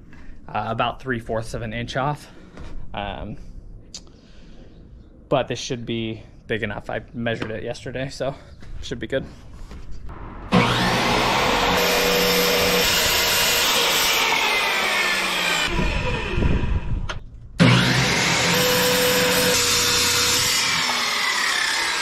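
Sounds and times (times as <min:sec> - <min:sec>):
circular saw cutting plywood: 0:10.2 - 0:16.9, 0:17.6 - 0:22.0.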